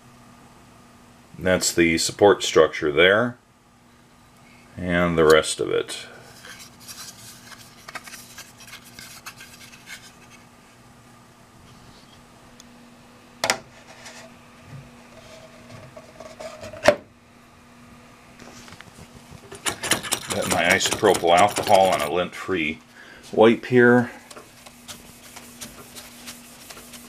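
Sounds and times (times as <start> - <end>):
faint steady hum: 0.0 - 27.0.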